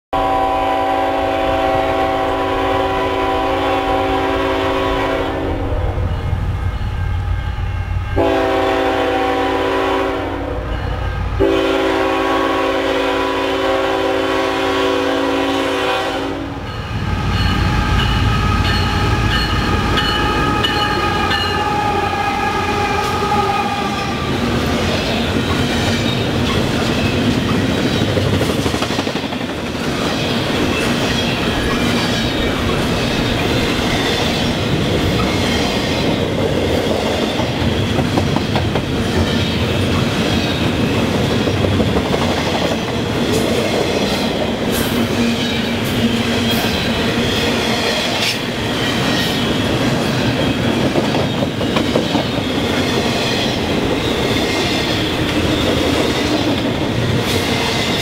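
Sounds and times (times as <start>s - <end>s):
locomotive horn blasts: 0.2s - 6.0s, 8.1s - 24.4s
train rumbling past: 0.2s - 58.0s.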